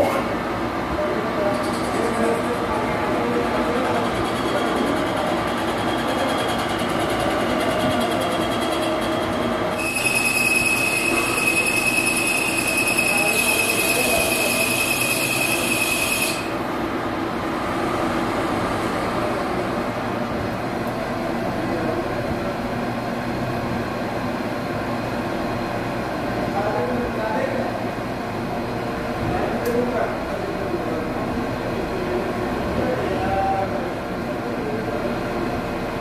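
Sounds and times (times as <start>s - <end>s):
metal lathe running: 1.4s - 22.0s
high cutting tool squeal: 8.3s - 16.6s.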